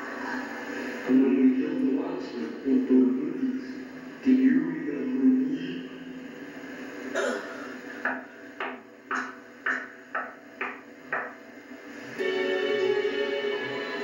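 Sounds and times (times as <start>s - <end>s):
music: 10.7s - 14.0s.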